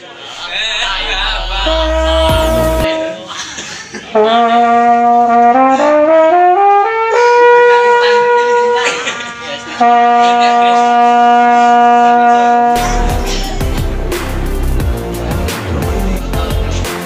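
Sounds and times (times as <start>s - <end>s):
electronic music with heavy bass: 0.3s - 2.9s, 12.8s - 17.0s
mellophone playing solo: 0.4s - 2.9s.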